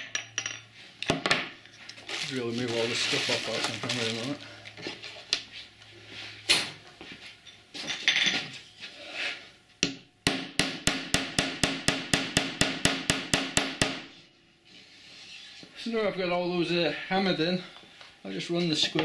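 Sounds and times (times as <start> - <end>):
handling rustle: 1.9 - 5.3.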